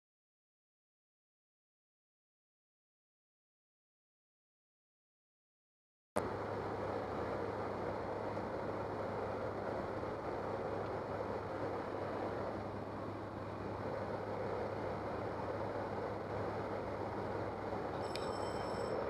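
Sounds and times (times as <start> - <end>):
aircraft engines droning: 6.2 - 19.0.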